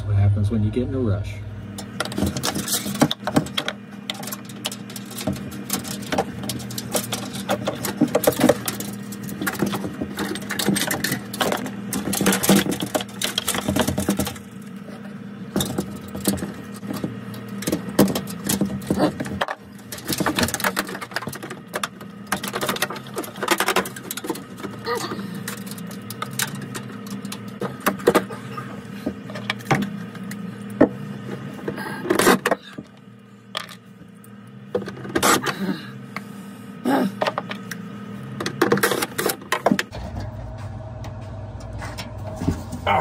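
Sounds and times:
steady low hum: 0.0s - 43.0s
hands clicking and clattering parts: 1.8s - 14.6s, 15.5s - 30.8s.

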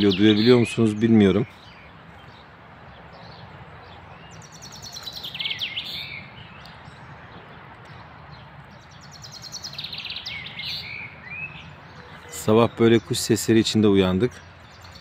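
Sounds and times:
songbird singing: 0.0s - 15.0s.

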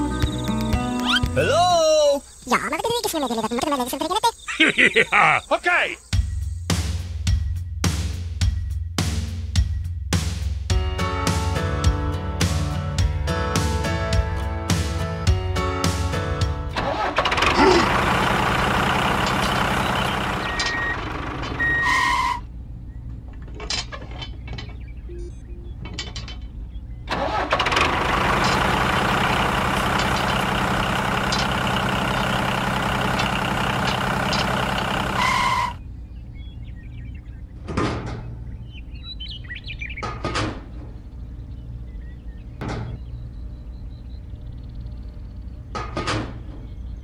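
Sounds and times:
toy tractor engine: 16.8s - 22.3s, 27.1s - 35.8s.

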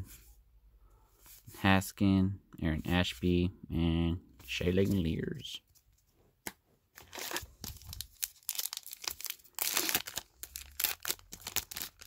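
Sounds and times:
wrapper crinkling and tearing: 7.0s - 12.0s.

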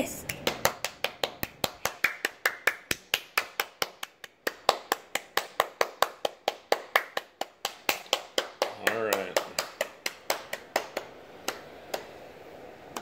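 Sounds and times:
hands clapping: 0.2s - 12.1s.

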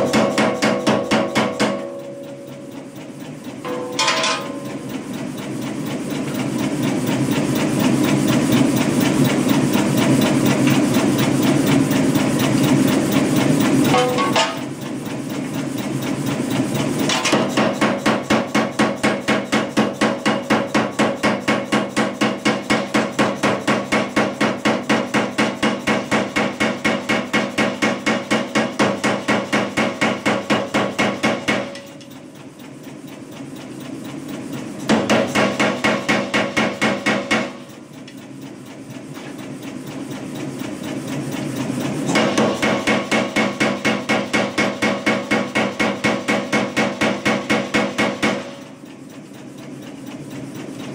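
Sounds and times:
steady low machine hum: 0.0s - 17.1s
power hammer striking hot steel: 0.0s - 50.9s.

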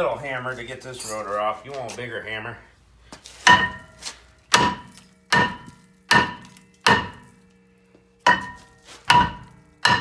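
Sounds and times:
hammer clanging on metal rotor: 3.4s - 7.5s, 8.2s - 10.0s.

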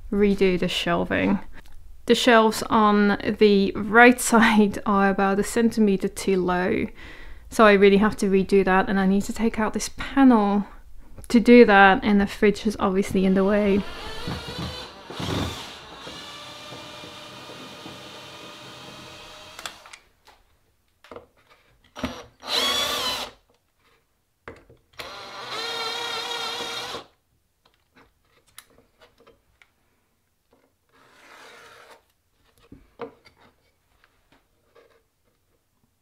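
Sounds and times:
cordless drill whining: 13.8s - 20.0s, 22.0s - 23.4s, 25.0s - 27.1s.

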